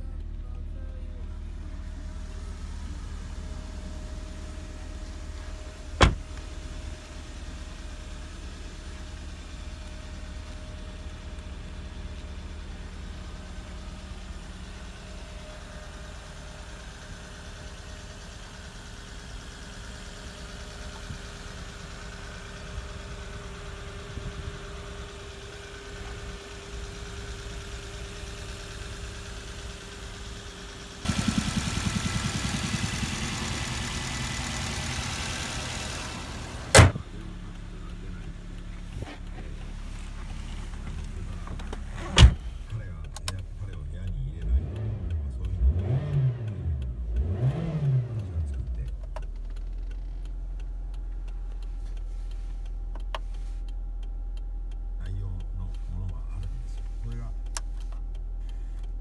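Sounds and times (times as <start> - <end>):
car engine idling: 0.0 - 59.0
car door shutting: 5.8 - 6.5, 36.6 - 37.1, 40.7 - 42.6.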